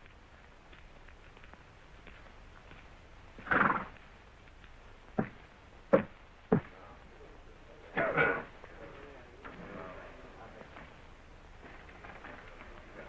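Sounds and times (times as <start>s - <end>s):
footsteps on wooden boards: 0.0s - 6.8s.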